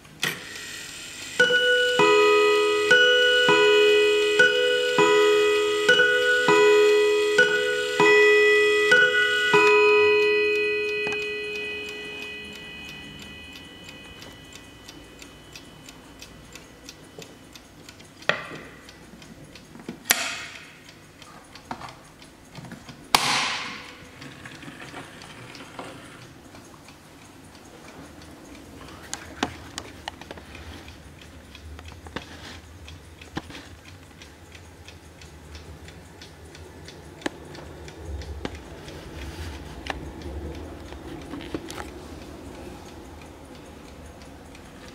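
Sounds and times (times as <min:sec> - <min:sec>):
clock ticking: 0:00.0 - 0:44.9
clock chime rods ringing: 0:00.6 - 0:19.2.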